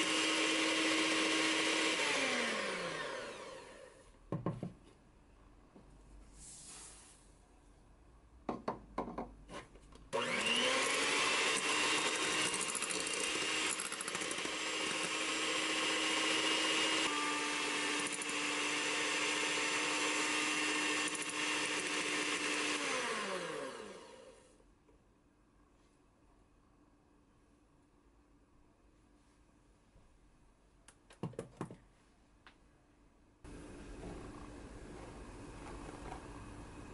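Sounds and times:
electric hand mixer whining: 0.0 - 4.0, 10.2 - 24.5.

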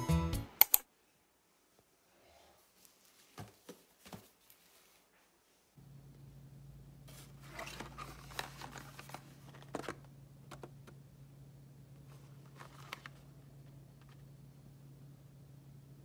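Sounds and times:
low hum: 5.8 - 16.0.

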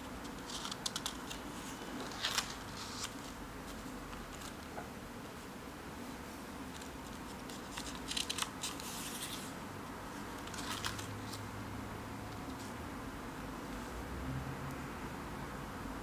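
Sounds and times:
faint steady hiss: 0.0 - 16.0
paper pages rustling: 0.1 - 4.8, 6.7 - 9.6, 10.2 - 11.4.

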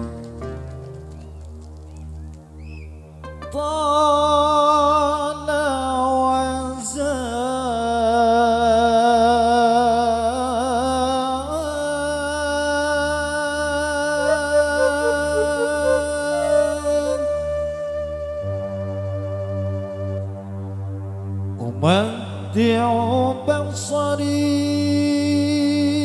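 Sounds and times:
man singing into a microphone: 3.6 - 17.6, 21.6 - 26.0.

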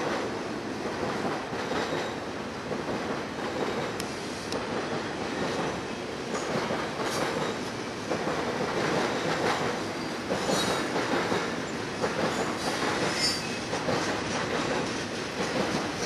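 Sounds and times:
train wheels rumbling on rail: 0.0 - 16.0
wheels clicking on rail: 0.9 - 16.0
high wheel squeals: 13.1 - 13.6.

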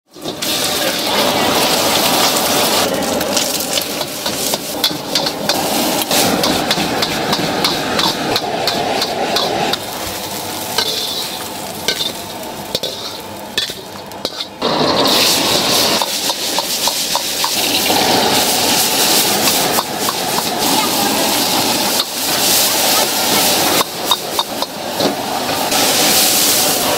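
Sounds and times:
metal ladle scraping a wok: 0.1 - 20.6
food sizzling in a wok: 0.1 - 26.9.

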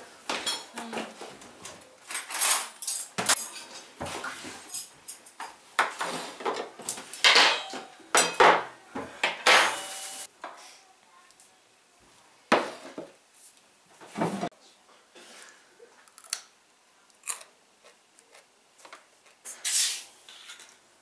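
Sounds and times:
plates and cutlery clinking: 2.1 - 10.3.

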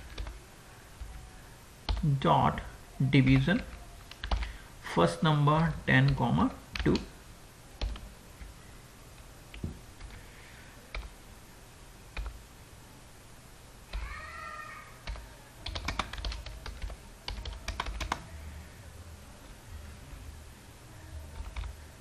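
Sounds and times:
computer keyboard typing: 0.0 - 0.4, 1.9 - 2.2, 3.2 - 4.5, 6.0 - 7.1, 7.8 - 8.5, 10.9 - 11.2, 12.2 - 12.4, 15.0 - 18.3, 21.3 - 21.8.

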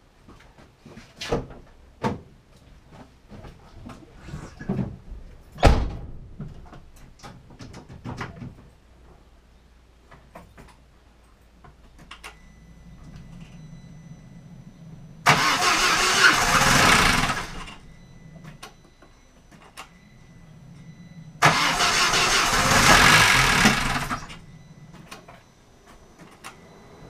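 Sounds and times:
car door shutting with a thud: 5.6 - 6.4
faint hum with thin whine: 8.4 - 15.3, 17.2 - 21.4, 24.0 - 27.0.

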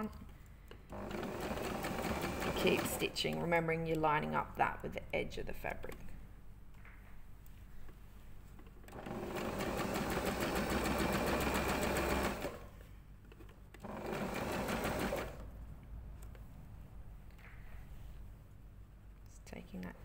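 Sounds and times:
sewing machine stitching: 0.9 - 3.4, 8.9 - 12.7, 13.8 - 15.5.

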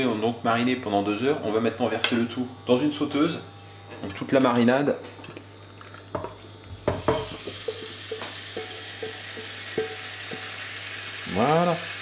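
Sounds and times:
chicken sizzling in pan: 6.7 - 12.0.

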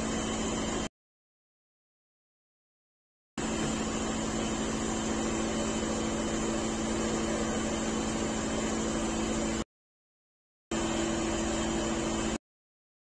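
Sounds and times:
handheld blower running: 3.4 - 9.6.

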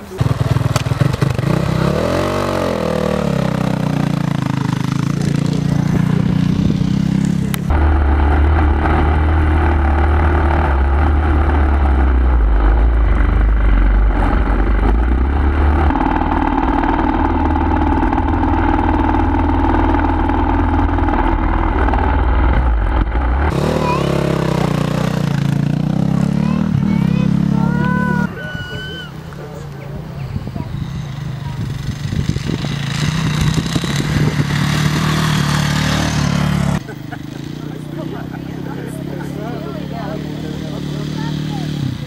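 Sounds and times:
motocross engines revving: 0.0 - 42.0
steady deep engine note: 1.4 - 28.4.

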